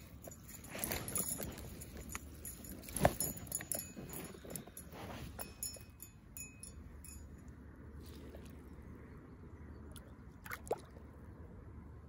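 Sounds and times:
handling rustling: 0.0 - 6.8
metallic clinks of unhooking tool: 0.0 - 7.4.

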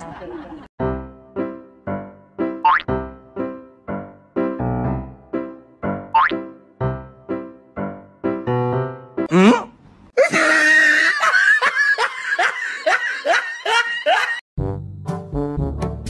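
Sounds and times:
background music: 0.8 - 9.3, 14.6 - 16.0
person laughing heartily: 10.2 - 14.4
brass-led music: 14.6 - 16.0.

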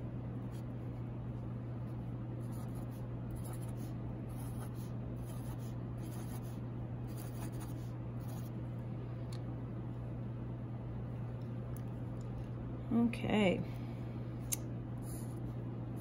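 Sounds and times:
steady low hum: 0.0 - 16.0
marker scratching on paper: 2.4 - 8.5.

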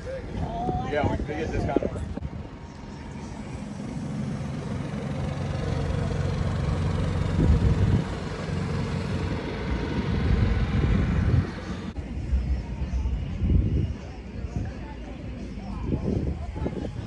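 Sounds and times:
generator engine hum: 0.0 - 17.0.

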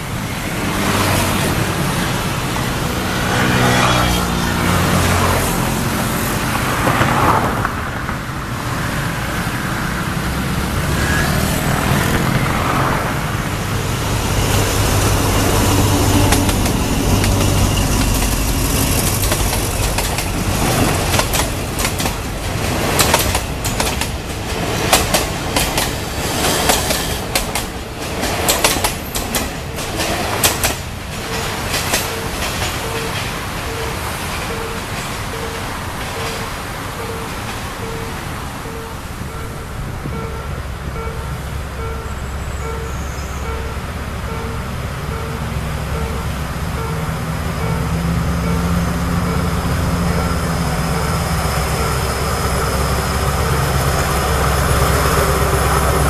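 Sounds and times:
wheels clattering on rails: 10.2 - 56.0
locomotive low rumble: 38.6 - 56.0.

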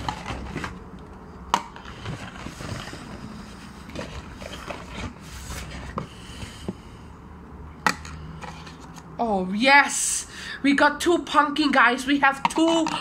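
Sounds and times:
plastic pails clicking on table: 12.4 - 13.0.

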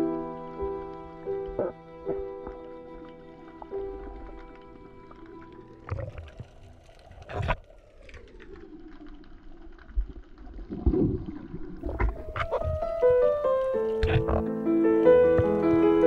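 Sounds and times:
background music: 0.0 - 6.7, 11.8 - 16.0
water sloshing and gurgling: 0.0 - 16.0.

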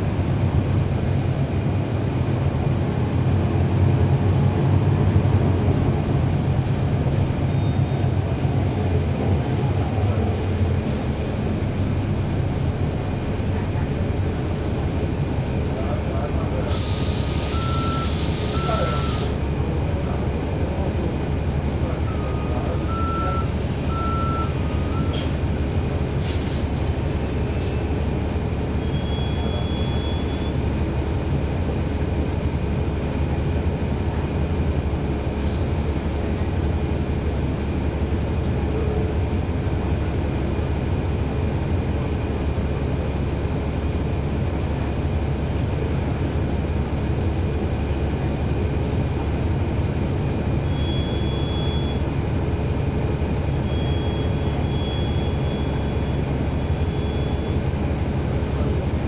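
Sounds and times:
diesel bus engine droning: 0.0 - 59.0
short beeps: 17.5 - 19.2, 22.1 - 25.1, 28.8 - 30.6, 50.0 - 52.0, 52.9 - 57.6.

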